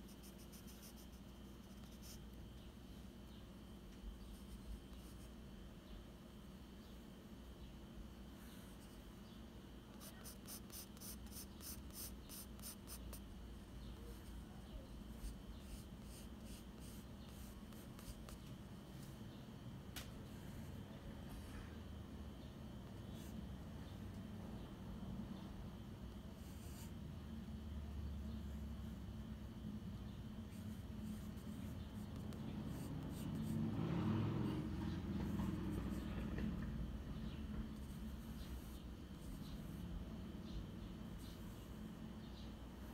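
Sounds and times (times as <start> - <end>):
pencil scratching on paper: 0.0 - 2.4, 9.9 - 18.5, 30.4 - 36.5, 37.2 - 40.6
steady low hum: 0.0 - 42.9.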